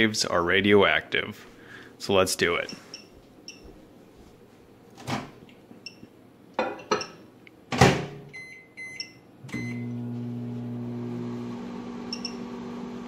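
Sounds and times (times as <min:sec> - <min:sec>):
microwave humming: 0:07.8 - 0:13.0
keypad beeps: 0:08.3 - 0:09.9.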